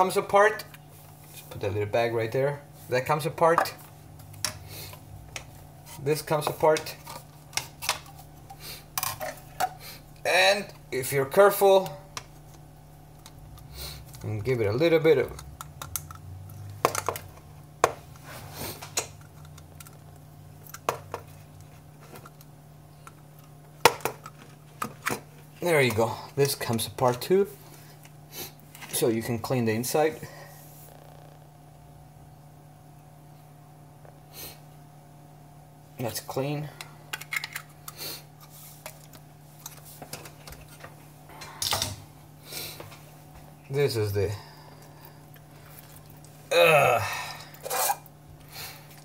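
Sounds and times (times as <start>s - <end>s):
plastic parts clicking and knocking: 15.3s - 18.0s.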